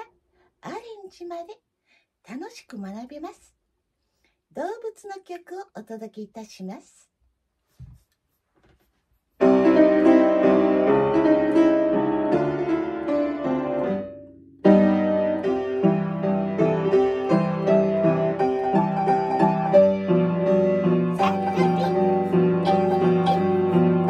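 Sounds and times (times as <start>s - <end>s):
piano playing a children's song: 9.4s - 24.0s.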